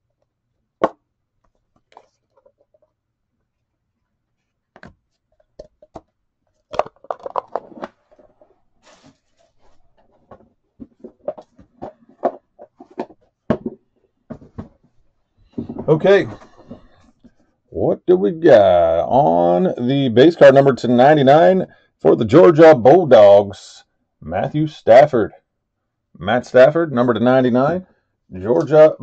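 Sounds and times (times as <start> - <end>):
trading cards and packaging rustling: 4.8 - 14.8.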